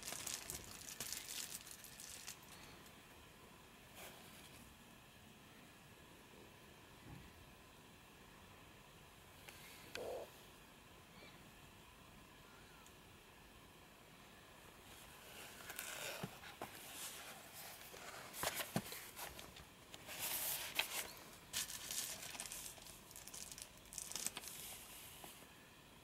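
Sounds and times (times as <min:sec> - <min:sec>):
cardboard box rustling and crinkling: 0:15.4 - 0:24.6.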